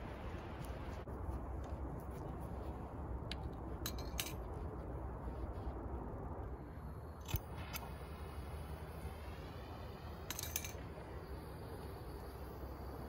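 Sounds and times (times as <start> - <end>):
steady low rumble: 0.0 - 13.0
metallic clicks and clinks: 3.8 - 4.5, 10.2 - 10.8.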